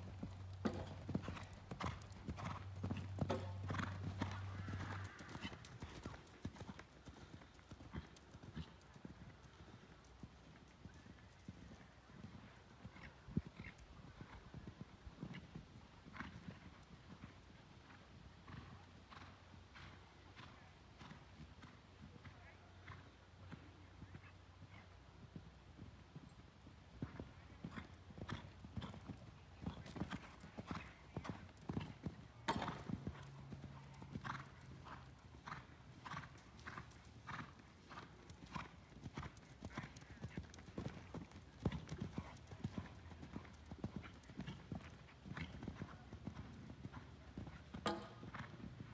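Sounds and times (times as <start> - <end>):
horse cantering: 0.0 - 15.5, 27.0 - 48.9.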